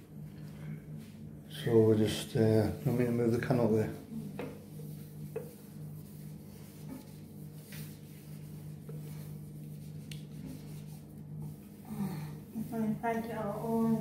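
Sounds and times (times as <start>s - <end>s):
steady low hum: 0.0s - 14.0s
faint handling taps and rubbing: 4.3s - 11.6s.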